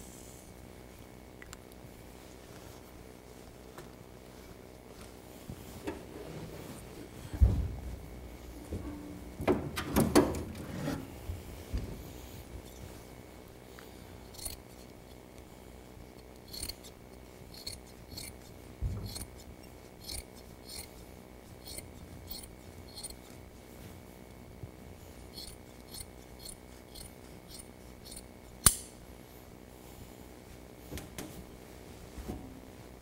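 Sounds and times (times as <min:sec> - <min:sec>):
scissors snipping padding: 0:25.4 - 0:28.9
sharp click: 0:27.0 - 0:29.0.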